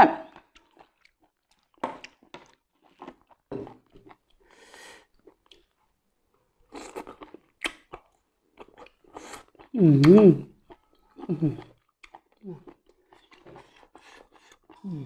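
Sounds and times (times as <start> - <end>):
wet chewing clicks: 0.3 - 4.4, 10.6 - 14.9.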